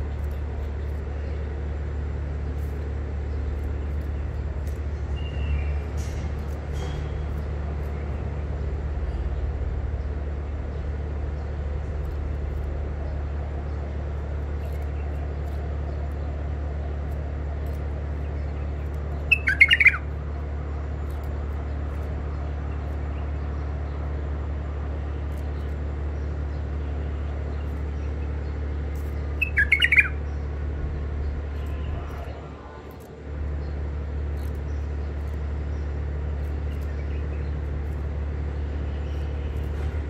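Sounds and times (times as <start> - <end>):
steady low hum: 0.0 - 40.0
bird chattering call notes: 18.2 - 20.2, 27.6 - 30.5.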